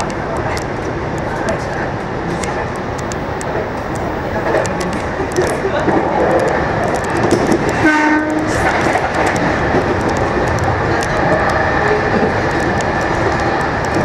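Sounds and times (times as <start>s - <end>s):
passing train: 0.0s - 14.0s
wheels clicking over rails: 0.0s - 14.0s
electric train running: 1.2s - 14.0s
train horn blast: 7.8s - 8.6s.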